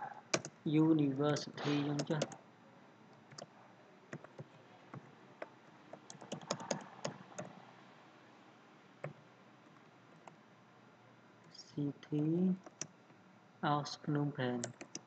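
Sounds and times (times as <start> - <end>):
keyboard keystrokes: 0.3 - 0.6, 1.3 - 2.4, 3.2 - 3.5, 4.1 - 7.6, 9.0 - 9.2, 14.6 - 15.0.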